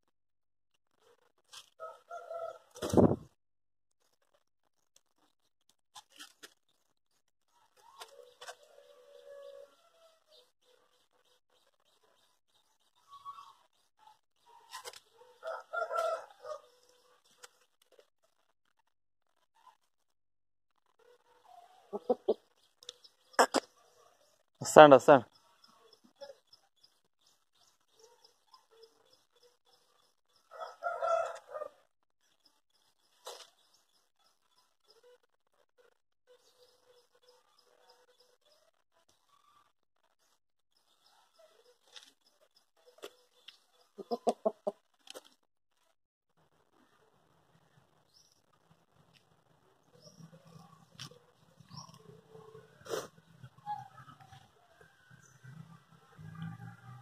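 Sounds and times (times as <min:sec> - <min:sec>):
rooster crowing: 0:01.8 - 0:02.7, 0:15.4 - 0:16.7, 0:30.5 - 0:31.8.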